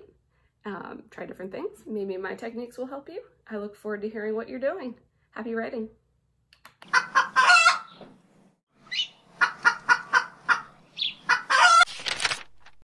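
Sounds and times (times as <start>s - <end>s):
animal clucking: 6.8s - 8.0s, 8.9s - 11.8s.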